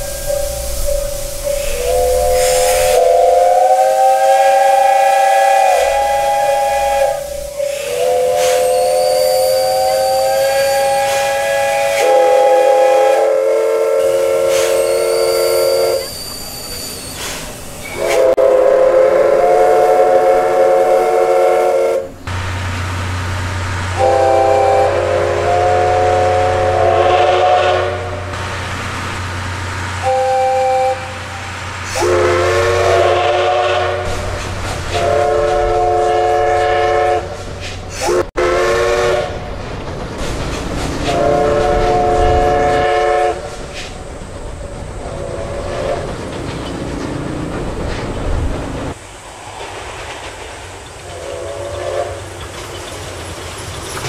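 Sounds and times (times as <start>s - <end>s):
steam locomotive whistle: 0.0s - 22.4s, 23.9s - 28.4s, 30.0s - 39.5s, 41.0s - 43.9s, 45.1s - 46.1s, 51.1s - 52.4s
steam hissing: 0.0s - 54.0s.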